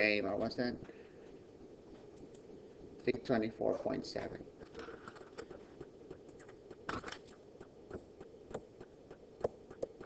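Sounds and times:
stylus tapping and scratching screen: 4.1s - 10.0s.

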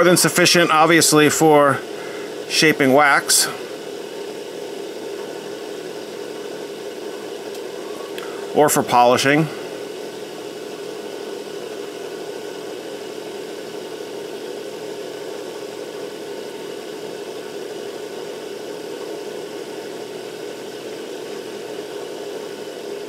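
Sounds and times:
micro motor humming: 0.0s - 23.0s.

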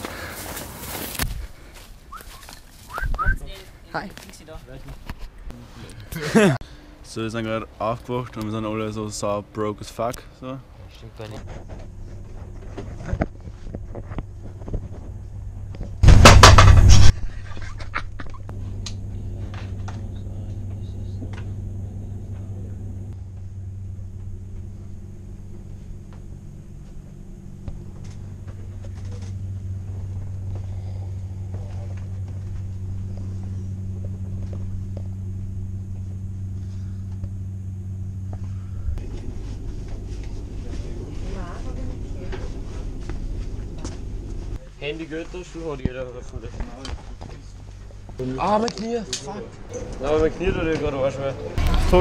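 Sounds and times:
train carriage hum and rumble: 0.0s - 52.0s
loud burst of noise: 16.0s - 17.4s.

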